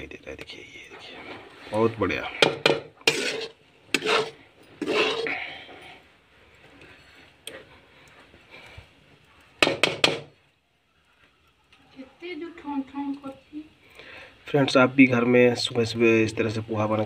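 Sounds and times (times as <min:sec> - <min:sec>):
metal spoon scraping metal pan: 0:01.0 - 0:05.6.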